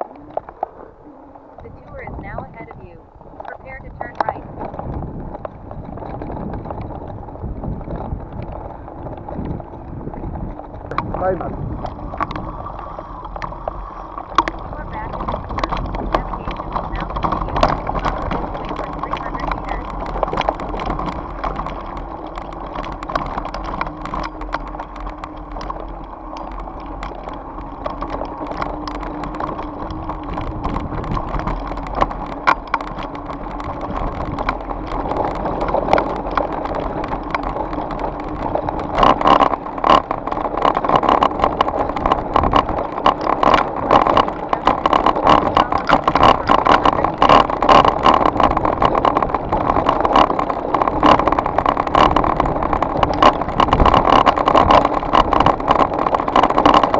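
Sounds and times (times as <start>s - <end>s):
bike rattling over bumps: 0.0s - 56.9s
tyres crunching over stones: 0.0s - 56.9s.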